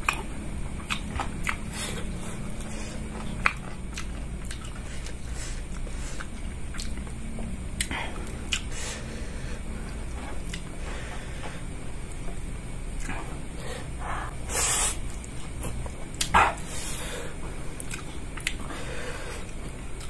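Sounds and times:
chewing food: 0.0 - 8.7, 10.1 - 10.7, 17.8 - 18.7
low hum: 0.0 - 20.0.

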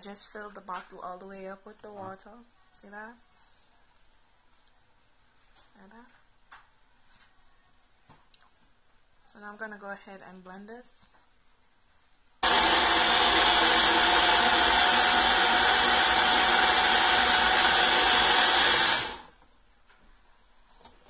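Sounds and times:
blender motor running: 12.4 - 19.4.

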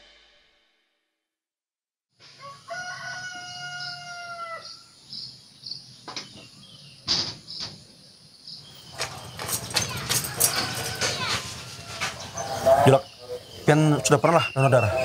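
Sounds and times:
rooster crowing: 2.3 - 4.9, 10.3 - 12.7.

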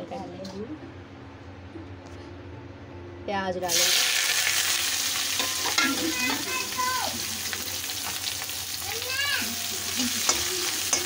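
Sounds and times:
onions sizzling in hot oil: 3.7 - 11.0.

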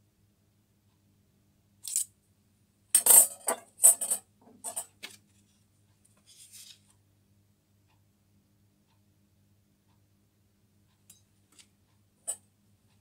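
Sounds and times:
metallic clinks and rattles: 3.0 - 4.9
paper rustle: 6.2 - 6.9.

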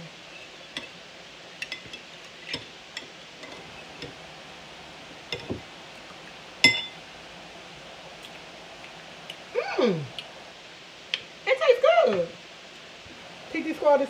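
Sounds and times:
metal spoon clinking glass bowl: 6.6 - 7.0.

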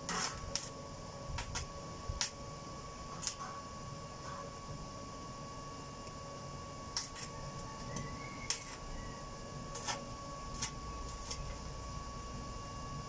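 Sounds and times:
welding arc crackles: 0.0 - 0.8, 1.4 - 2.4, 3.0 - 3.5, 6.9 - 7.7, 8.4 - 9.0, 9.6 - 11.8.

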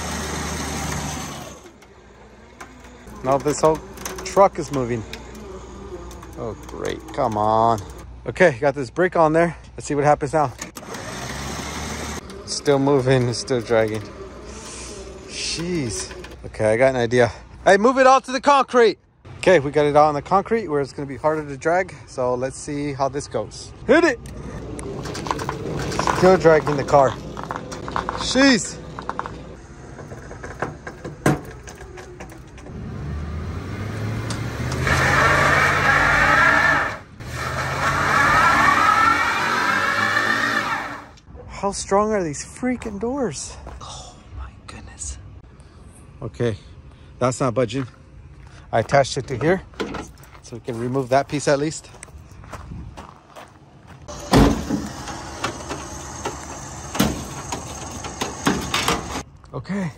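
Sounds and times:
panel dragged over gravel: 0.0 - 8.0, 10.4 - 16.8, 24.6 - 32.6, 49.2 - 59.3
truck engine revving: 0.0 - 8.1, 10.7 - 16.4, 31.4 - 41.2, 54.0 - 59.2.

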